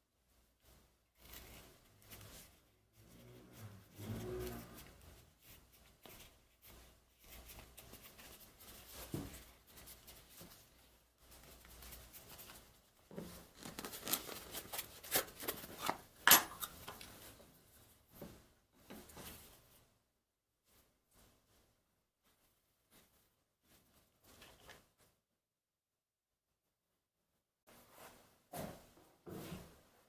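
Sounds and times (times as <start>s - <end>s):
leather rubbing and rustling: 0.7s - 16.0s.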